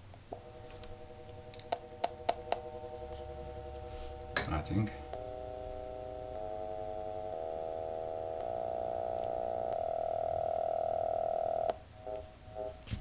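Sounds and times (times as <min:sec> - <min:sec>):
subwoofer playing bass test tones: 0:00.3 - 0:13.0.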